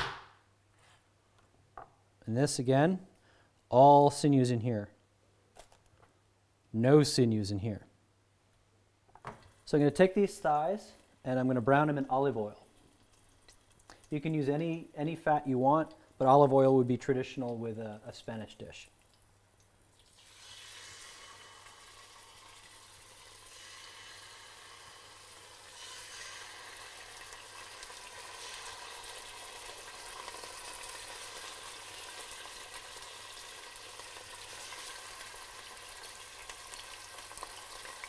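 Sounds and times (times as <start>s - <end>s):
meat sizzling in hot oil: 19.9s - 38.0s.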